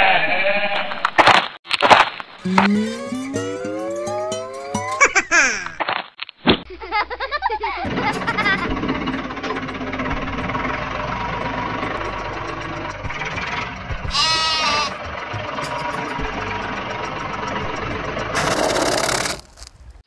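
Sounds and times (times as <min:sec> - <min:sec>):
animal bleat: 0:00.0 - 0:00.9, 0:14.1 - 0:15.0
engine-like drone: 0:07.9 - 0:19.4.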